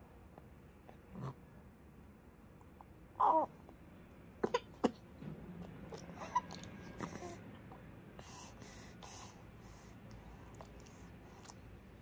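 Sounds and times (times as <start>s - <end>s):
wet mouth clicks: 10.1s - 11.6s.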